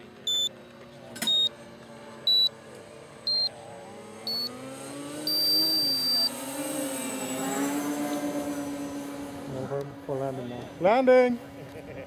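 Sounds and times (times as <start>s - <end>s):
model airplane engine drone: 0.0s - 12.0s
rising electronic beeps: 1.2s - 1.5s, 2.3s - 2.6s, 3.2s - 7.6s.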